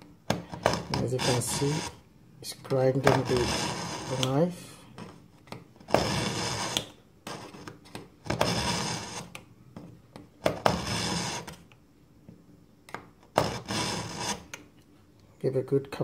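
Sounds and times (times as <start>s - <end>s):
knife scraping in sharpener: 0.5s - 2.0s, 3.0s - 5.1s, 5.9s - 7.7s, 8.3s - 9.4s, 10.5s - 11.6s, 13.4s - 14.6s.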